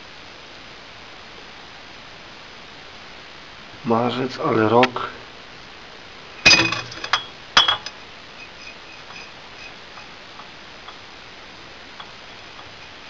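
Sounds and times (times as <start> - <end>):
glass bottle clinking: 6.4 - 10.1.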